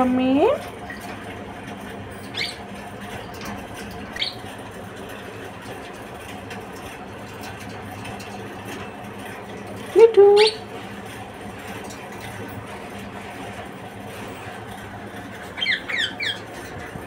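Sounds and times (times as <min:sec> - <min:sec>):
parakeet squeaking: 0:02.3 - 0:02.6, 0:04.2 - 0:04.4, 0:10.3 - 0:10.6, 0:15.6 - 0:16.4.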